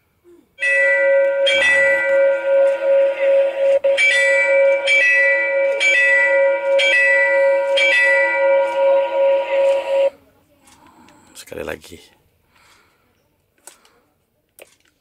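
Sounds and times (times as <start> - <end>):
electronic crossing warning bell: 0.6 - 10.1.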